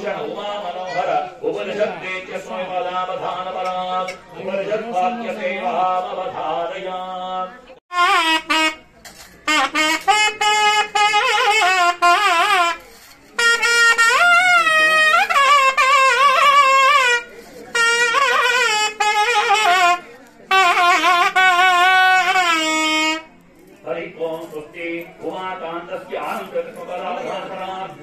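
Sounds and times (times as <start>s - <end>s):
reed wind instrument melody: 7.9s - 23.6s.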